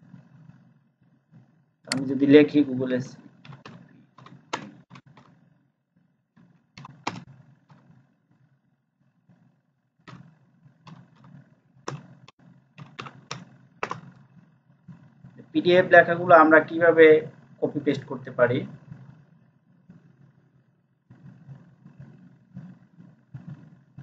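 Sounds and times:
keyboard keystroke clicks: 6.8 - 7.2, 12.8 - 14.1.

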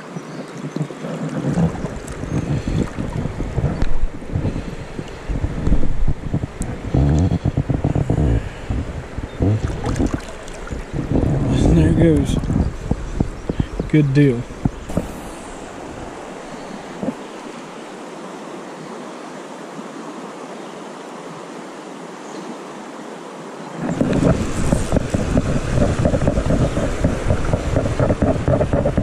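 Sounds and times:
flowing river water: 0.0 - 29.0
wind rumble on microphone: 0.5 - 17.6, 23.7 - 29.0.

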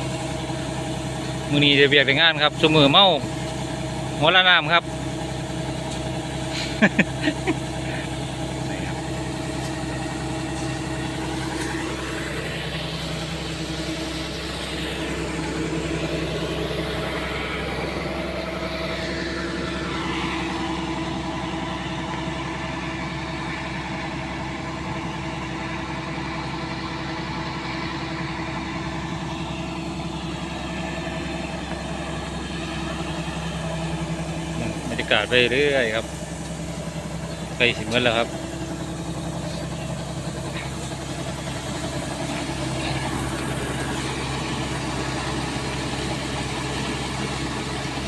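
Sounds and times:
combine harvester diesel engine running: 0.0 - 48.0
unloading auger running: 5.0 - 24.0, 28.1 - 48.0.

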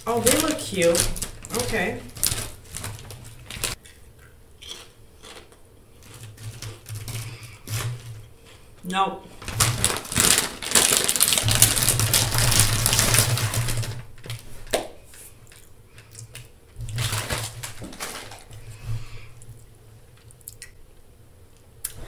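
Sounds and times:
chip bag crinkling: 0.0 - 8.7, 9.3 - 18.8
chewing crunchy chips: 0.1 - 8.7, 9.4 - 14.4.

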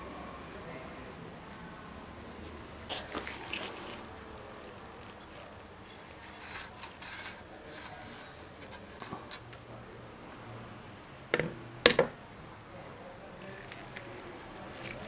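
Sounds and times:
coil spring scraping in metal tube: 5.2 - 9.6.

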